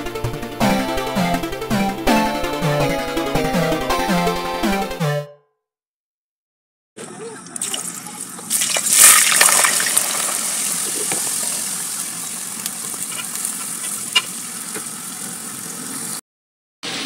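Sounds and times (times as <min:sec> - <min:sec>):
potato chips sizzling in oil: 0:08.5 - 0:16.2.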